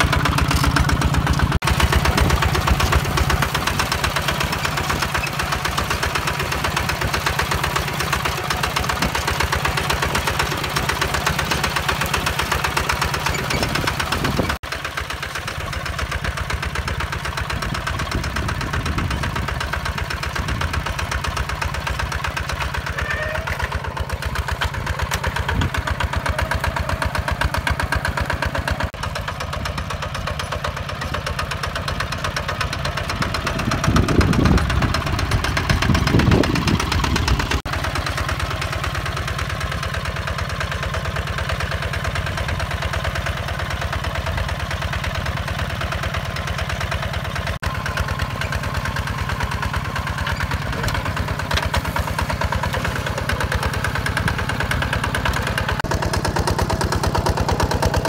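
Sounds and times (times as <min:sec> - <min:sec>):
diesel tractor engine running: 0:00.0 - 0:58.0.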